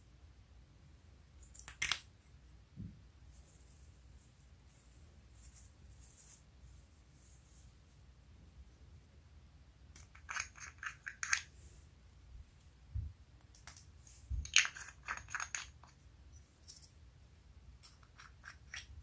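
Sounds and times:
plastic jar clicks and rattles: 0:13.5 - 0:15.9.

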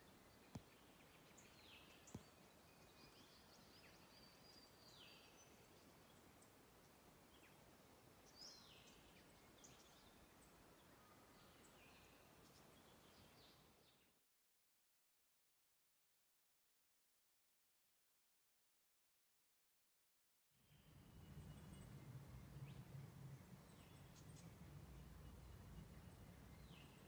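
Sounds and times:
low hiss: 0:00.0 - 0:14.1, 0:20.7 - 0:27.0
small birds chirping: 0:00.0 - 0:14.2, 0:20.8 - 0:27.0.

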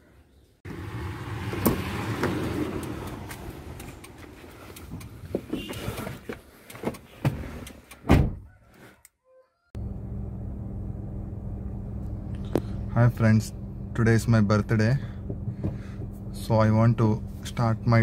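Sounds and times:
car door thumping shut: 0:08.0 - 0:08.4.

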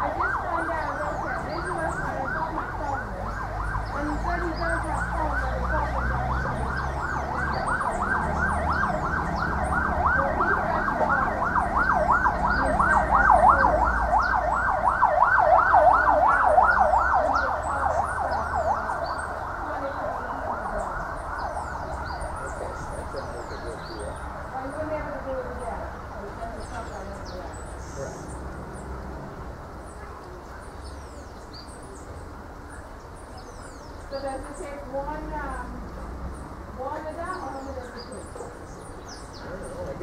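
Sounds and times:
warbling siren: 0:00.0 - 0:25.6.

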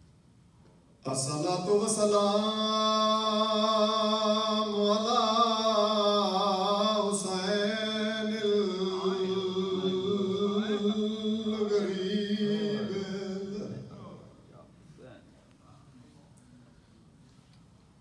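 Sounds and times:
man chanting a long note: 0:08.8 - 0:14.4.

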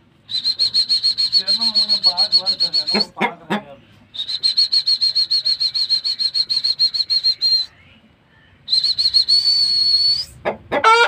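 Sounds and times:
high whistle trilling: 0:00.3 - 0:03.1, 0:04.2 - 0:07.8, 0:08.7 - 0:10.4
rooster calling: 0:09.7 - 0:11.0.

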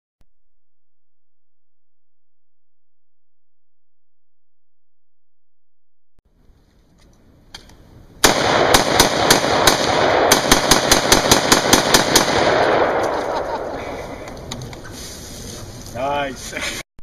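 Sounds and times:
rifle shots with echo: 0:08.2 - 0:13.8.

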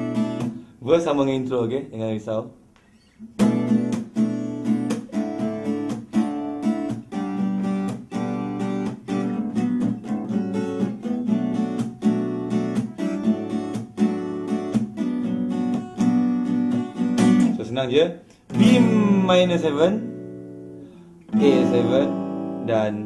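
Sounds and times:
acoustic guitar strumming: 0:00.0 - 0:01.3, 0:02.8 - 0:23.0.

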